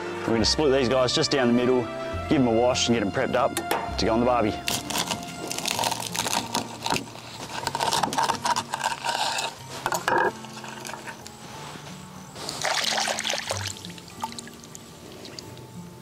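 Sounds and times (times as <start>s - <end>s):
shell cracking under knife: 4.6s - 11.1s
water splashing: 12.4s - 15.7s.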